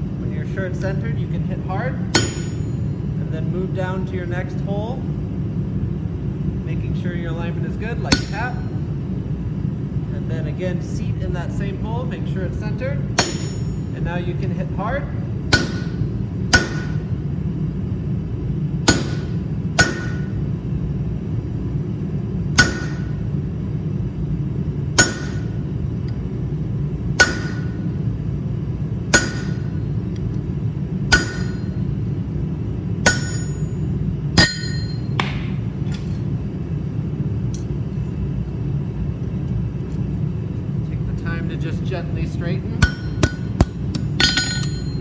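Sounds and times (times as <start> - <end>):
low hum: 0.0 - 45.0
hammer striking punch on steel: 2.1 - 2.9, 8.1 - 8.7, 13.2 - 13.8, 15.5 - 17.1, 18.8 - 20.4, 22.5 - 23.2, 25.0 - 25.6, 27.2 - 27.8, 29.1 - 29.8, 31.1 - 31.9, 33.0 - 33.8, 34.4 - 35.5, 42.8 - 45.0.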